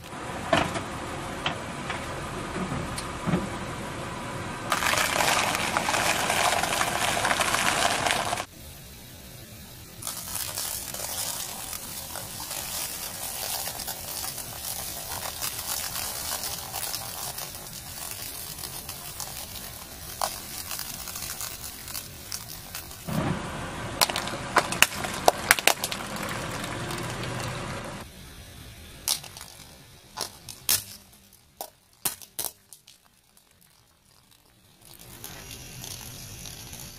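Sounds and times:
sharp cracks: 4.7 - 8.5, 10.0 - 23.4, 24.0 - 27.6, 29.0 - 36.9
tyre crushing potatoes: 4.7 - 8.5, 10.0 - 23.2, 24.0 - 27.5.

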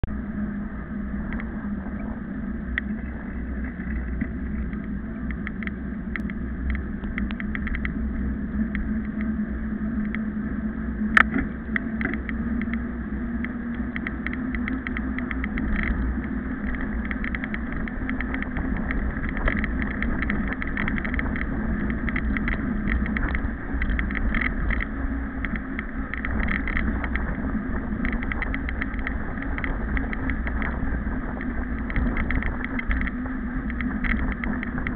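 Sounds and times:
bike tyre road rumble: 0.0 - 34.9
light rattling clicks: 13.4 - 34.9.

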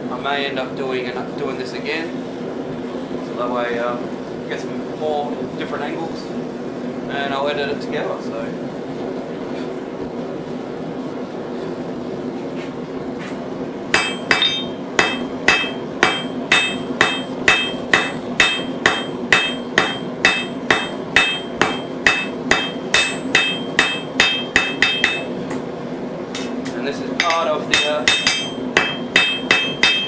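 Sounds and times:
hammer ringing on anvil: 14.0 - 25.3, 27.2 - 30.0.

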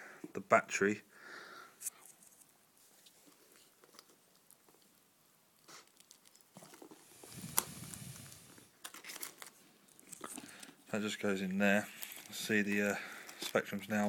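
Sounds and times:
rustling: 5.6 - 14.0.

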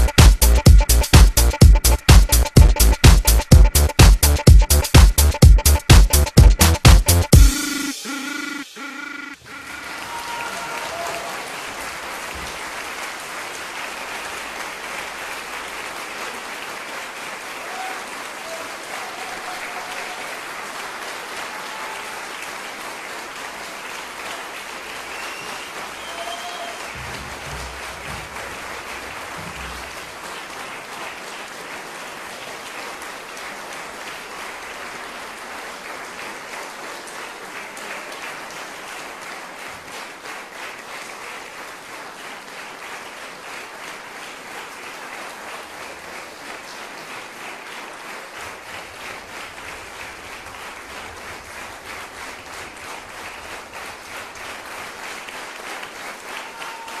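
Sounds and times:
low bass music notes: 0.0 - 7.5
audience applauding: 0.0 - 57.0.

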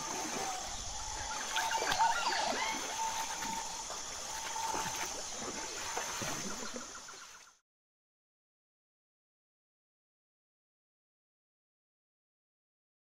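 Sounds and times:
water trickling and splashing: 0.0 - 7.6.

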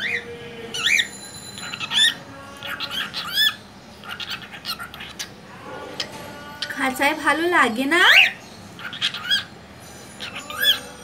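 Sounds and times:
cockatiel calling: 0.8 - 5.3, 8.1 - 9.5.

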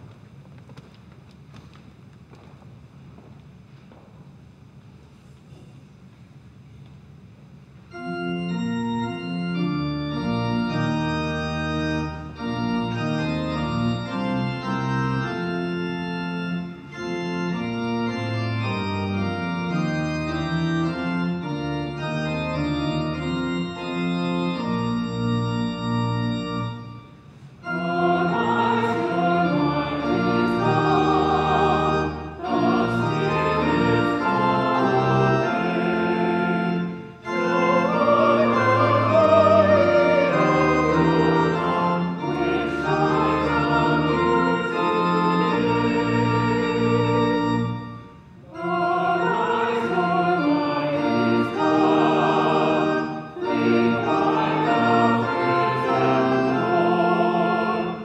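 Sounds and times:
church organ playing chords: 7.9 - 58.0
group singing a hymn: 27.7 - 47.4, 48.5 - 58.0.

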